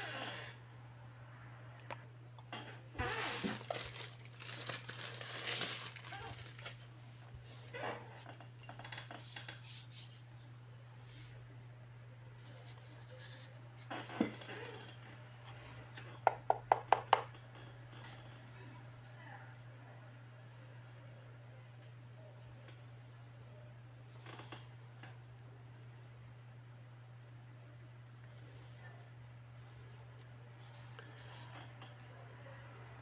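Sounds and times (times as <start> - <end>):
plastic bag crinkling: 3.0 - 6.9.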